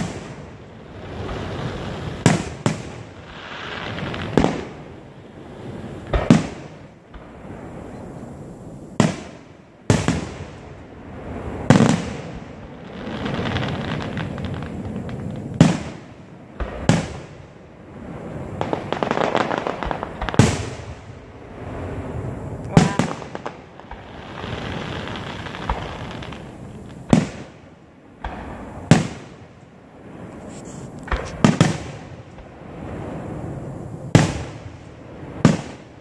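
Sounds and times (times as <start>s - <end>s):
firework crackling: 0.0s - 36.0s
firework shells bursting: 28.2s - 33.2s.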